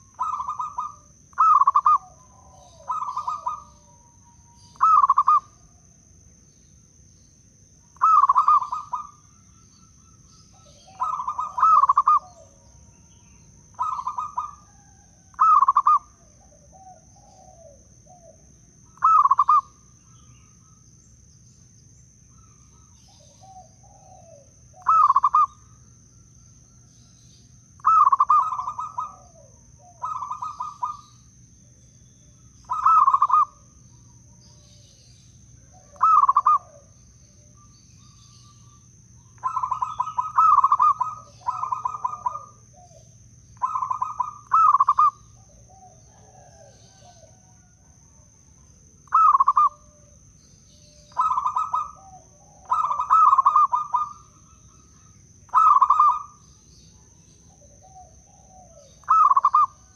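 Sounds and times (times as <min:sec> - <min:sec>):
dove cooing: 0:00.0 - 0:04.1, 0:04.7 - 0:05.6, 0:08.0 - 0:09.3, 0:10.5 - 0:12.7, 0:13.7 - 0:19.8, 0:22.8 - 0:25.6, 0:27.8 - 0:31.3, 0:32.6 - 0:33.7, 0:35.6 - 0:37.0, 0:39.4 - 0:47.7, 0:49.0 - 0:50.2, 0:50.8 - 0:56.5, 0:57.5 - 0:59.9.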